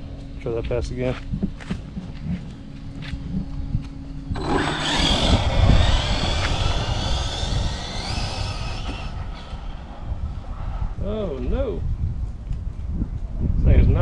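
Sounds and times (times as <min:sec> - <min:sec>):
tyre and wind noise: 0:01.2 - 0:14.0
electric motor whining: 0:04.3 - 0:10.5.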